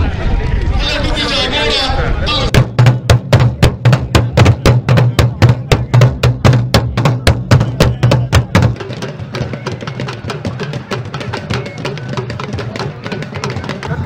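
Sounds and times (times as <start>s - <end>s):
deep booming beat: 2.5s - 9.0s
fast drumming: 2.5s - 14.0s.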